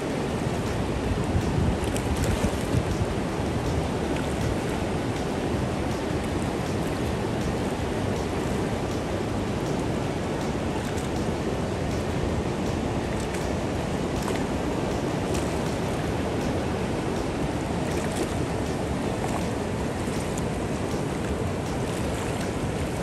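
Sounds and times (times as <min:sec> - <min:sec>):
whitewater rapids roaring: 0:00.0 - 0:23.0.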